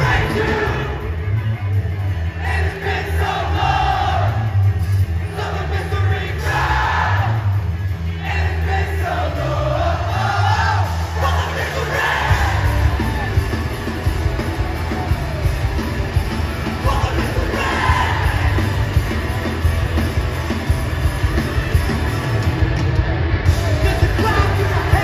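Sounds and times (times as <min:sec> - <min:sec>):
vocals: 0:00.0 - 0:13.4, 0:16.6 - 0:19.2, 0:23.5 - 0:25.0
punk band playing live: 0:00.0 - 0:25.0.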